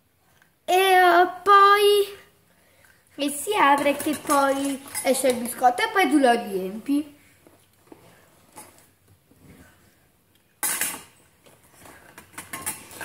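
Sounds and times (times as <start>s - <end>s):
utensils clattering: 3.5s - 5.6s, 10.6s - 11.2s, 11.9s - 13.0s
metal utensils clinking: 3.5s - 5.7s, 10.6s - 11.2s, 12.0s - 13.0s.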